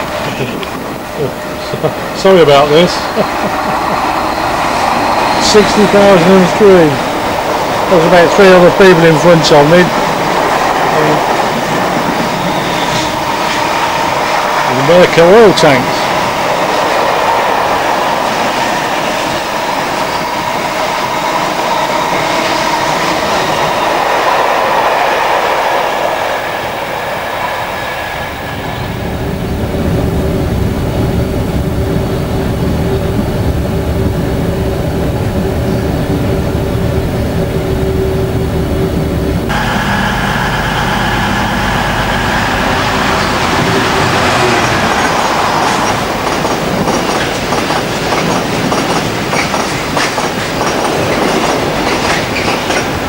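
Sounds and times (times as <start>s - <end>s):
low rumble of freight wagons: 0.0s - 53.0s
train wheels on rails: 0.0s - 53.0s
steady hum: 35.3s - 46.4s.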